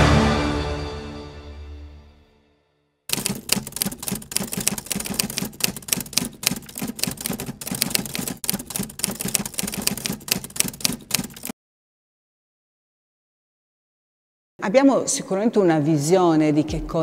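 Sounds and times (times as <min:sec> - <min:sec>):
typewriter key clicks: 0:03.1 - 0:11.5.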